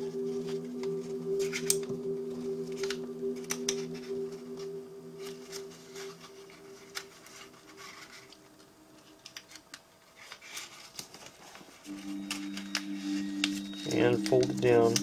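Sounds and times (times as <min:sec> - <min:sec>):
held background music tone: 0:00.0 - 0:10.7, 0:11.9 - 0:15.0
paper crackles: 0:05.2 - 0:11.9
paper rustling and crinkling: 0:05.2 - 0:12.0.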